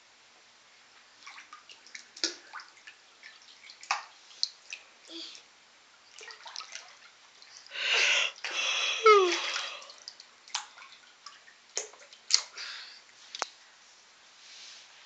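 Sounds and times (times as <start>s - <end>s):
water splashing in paddling pool: 1.1s - 5.4s, 6.1s - 13.0s.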